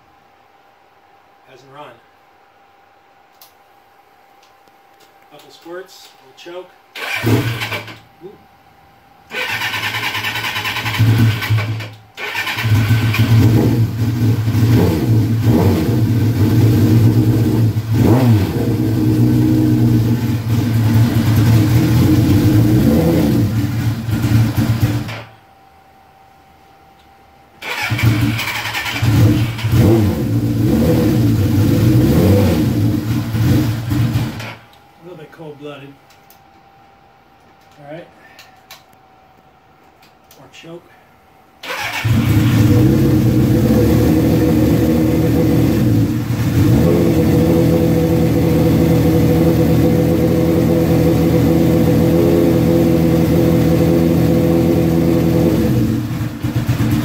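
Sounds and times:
motorcycle engine starting and revving: 7.0s - 8.0s, 9.3s - 25.4s, 27.6s - 34.7s, 41.6s - 57.0s.

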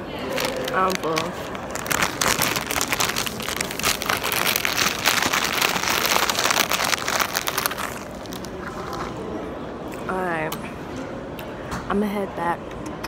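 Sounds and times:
plastic bag crinkling: 0.1s - 9.1s.

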